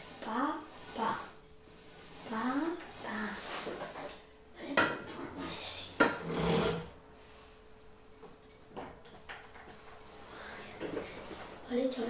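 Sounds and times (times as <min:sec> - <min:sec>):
pulldown bar cable rubbing: 0:06.1 - 0:06.9.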